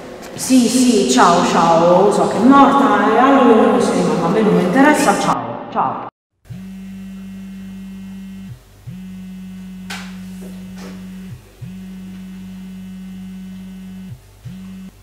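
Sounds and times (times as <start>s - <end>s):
mobile phone vibrating: 6.5s - 15.0s.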